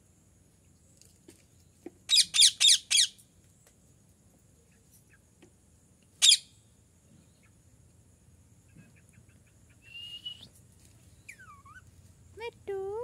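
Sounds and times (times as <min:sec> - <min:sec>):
parakeet squawking: 0:06.2 - 0:06.4.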